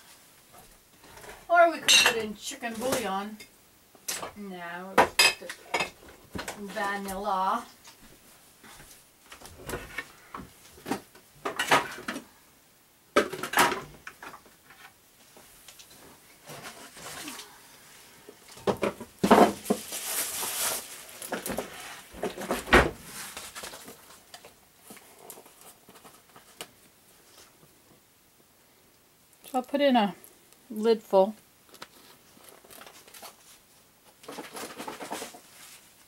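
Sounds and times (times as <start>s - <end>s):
kitchen items knocking and clinking: 10.8s - 12.2s, 13.2s - 14.4s.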